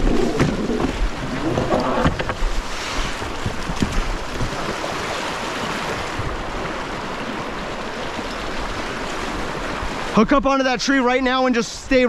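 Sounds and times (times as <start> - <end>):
wind buffeting microphone: 0.0 - 10.4
river current rushing: 0.0 - 12.0.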